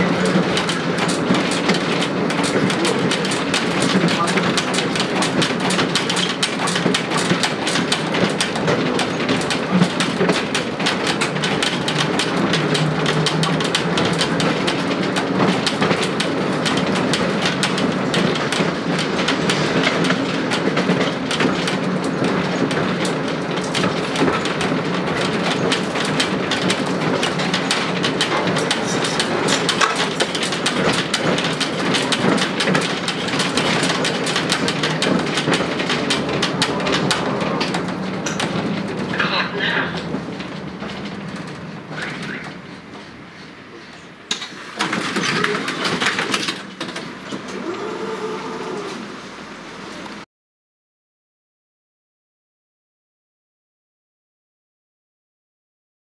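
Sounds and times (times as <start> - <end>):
tram rattling on rails: 0.0 - 50.2.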